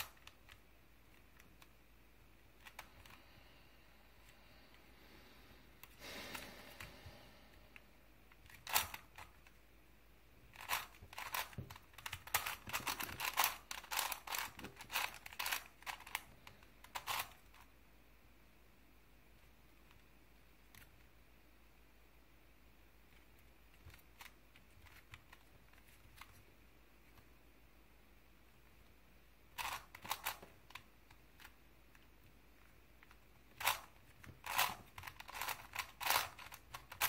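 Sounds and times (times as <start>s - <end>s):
puzzle cube clicking turns: 0.0s - 3.2s, 7.7s - 9.6s, 10.4s - 17.7s, 23.1s - 26.5s, 29.5s - 37.0s.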